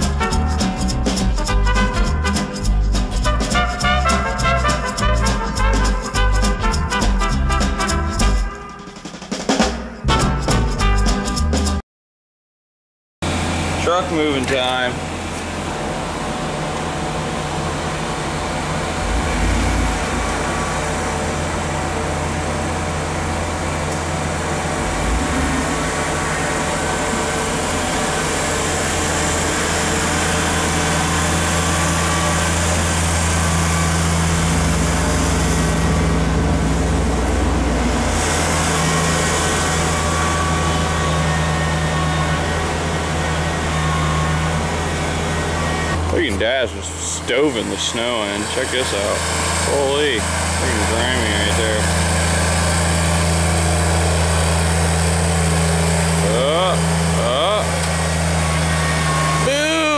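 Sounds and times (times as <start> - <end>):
vehicle engine idling: 13.3 - 59.9.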